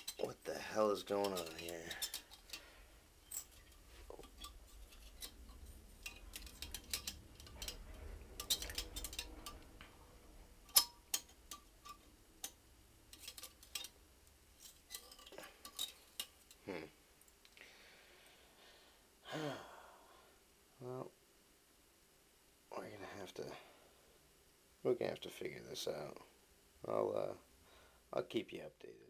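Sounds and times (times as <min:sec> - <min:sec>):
wire scraping toilet bowl: 0:00.0 - 0:16.6.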